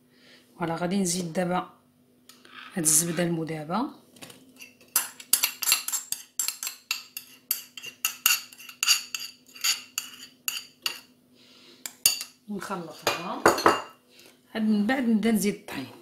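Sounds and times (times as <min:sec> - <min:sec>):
faint steady hum: 0:00.0 - 0:16.0
metal spoon scraping ceramic bowl: 0:04.6 - 0:11.1.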